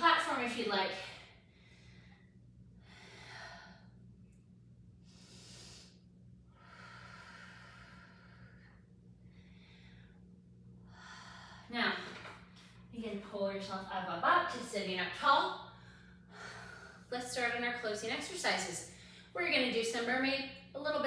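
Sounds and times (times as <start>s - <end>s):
faint steady hum: 0.0s - 21.0s
woman breathing softly: 1.1s - 4.2s, 5.0s - 12.9s, 15.7s - 17.1s.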